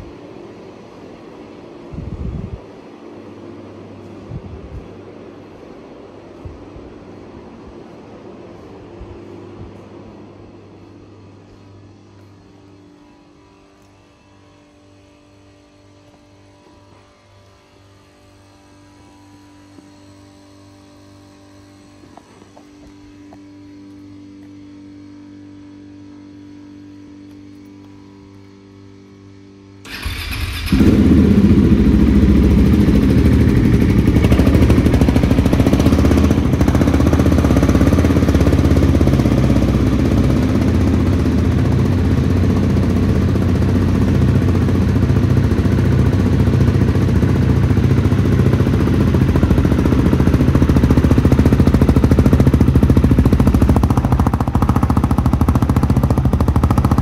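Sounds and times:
loud motorcycle engine running: 29.8 - 57.0
motorcycle engine cranking: 29.9 - 32.3.

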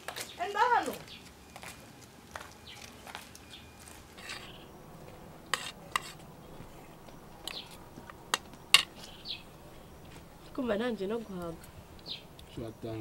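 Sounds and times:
dishes and cutlery clinking: 5.5 - 9.2.

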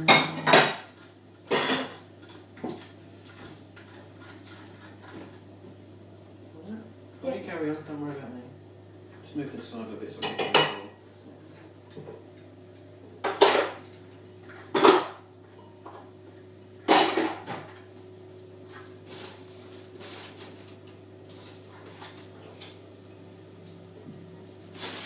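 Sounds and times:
pots pans and cutlery clattering: 0.0 - 5.4, 9.1 - 17.9.

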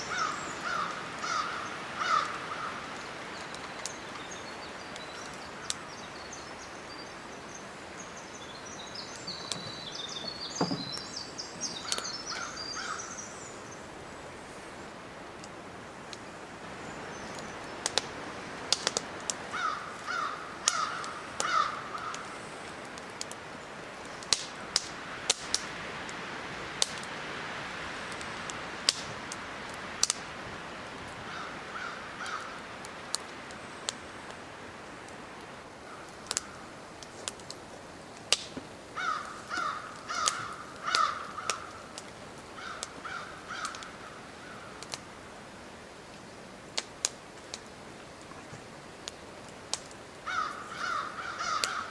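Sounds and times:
crow cawing: 0.1 - 2.9, 11.8 - 13.1, 19.5 - 22.3, 31.3 - 32.6, 39.0 - 41.9, 42.6 - 44.8, 50.2 - 51.9.

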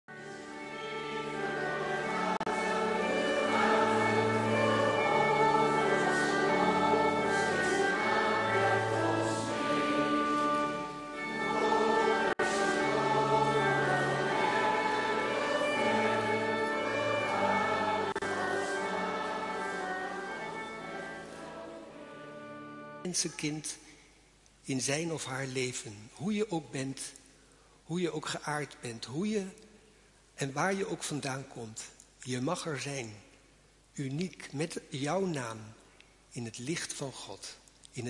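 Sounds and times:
choir singing sustained chords: 0.1 - 23.1.

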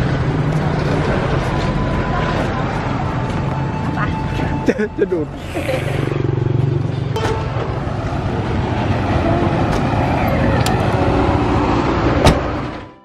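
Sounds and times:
vehicle engines humming: 0.0 - 13.0
car door shutting: 12.2 - 12.6.

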